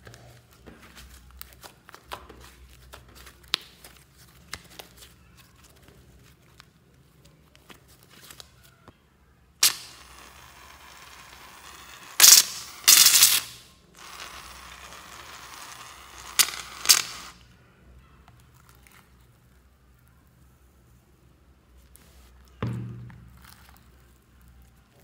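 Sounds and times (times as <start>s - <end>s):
aerosol can hissing: 9.6s - 10.4s, 12.1s - 13.6s.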